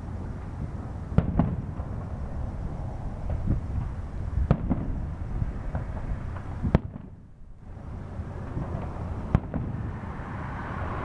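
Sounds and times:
small firework pops: 0:01.2 - 0:02.0, 0:03.2 - 0:05.0, 0:05.7 - 0:07.2, 0:08.5 - 0:09.8.

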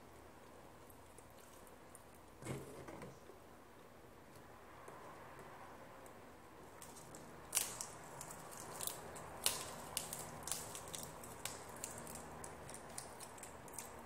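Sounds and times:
lettuce leaves crackling: 0:06.8 - 0:14.0.

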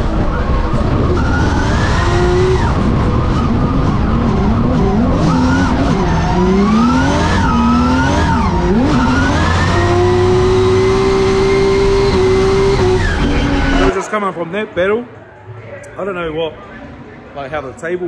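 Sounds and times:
car engine revving: 0:00.0 - 0:14.2.

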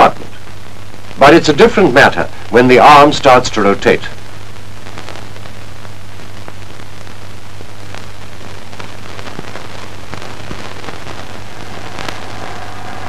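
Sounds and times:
faint crackles and clicks: 0:00.0 - 0:13.0
film soundtrack hiss: 0:00.0 - 0:13.0
low hum: 0:09.7 - 0:13.0.

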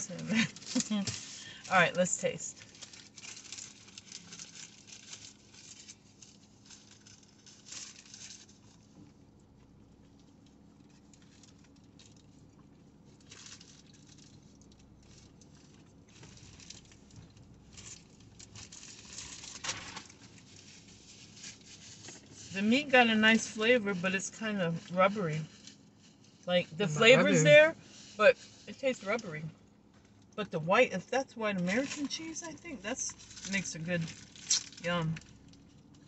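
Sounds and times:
paper wrappers rustling: 0:00.0 - 0:09.0, 0:13.1 - 0:29.4, 0:31.6 - 0:36.0
faint low hum: 0:00.0 - 0:36.0.

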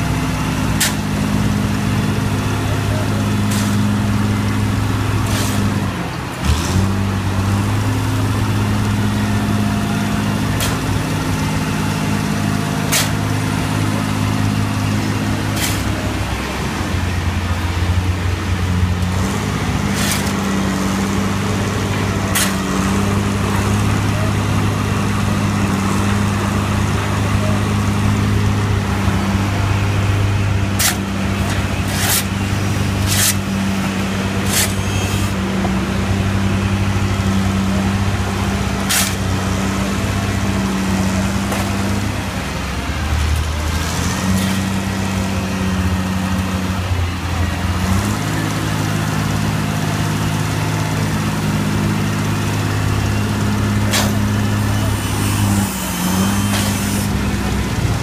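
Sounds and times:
drill rig engine running: 0:00.0 - 0:58.0
shovel striking ground: 0:00.8 - 0:01.0, 0:03.4 - 0:03.9, 0:05.2 - 0:05.8, 0:10.5 - 0:11.0, 0:12.8 - 0:13.4, 0:15.4 - 0:16.2, 0:19.3 - 0:20.6, 0:22.3 - 0:22.8, 0:30.7 - 0:33.5, 0:34.4 - 0:35.4, 0:38.8 - 0:39.3, 0:53.8 - 0:57.2.

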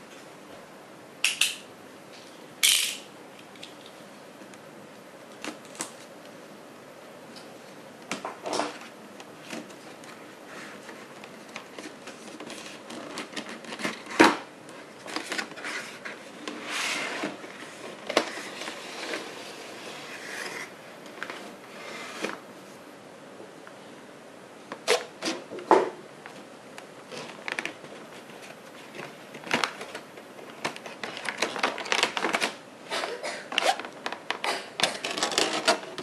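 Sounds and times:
cardboard box and plastic handling: 0:09.4 - 0:19.4, 0:27.0 - 0:32.6.

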